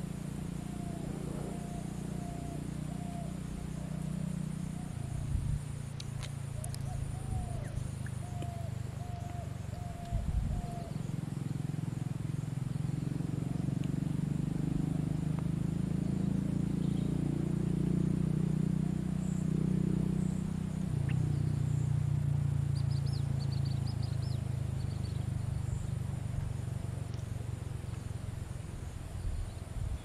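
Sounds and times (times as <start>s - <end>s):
steady low rumble: 0.0s - 17.1s
small bird chirping: 0.6s - 11.5s, 14.8s - 17.4s, 19.2s - 26.1s.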